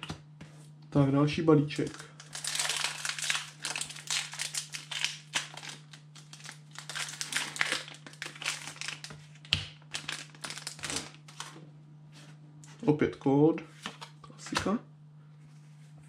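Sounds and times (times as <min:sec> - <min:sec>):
foil wrapper crinkling: 0:01.8 - 0:11.6.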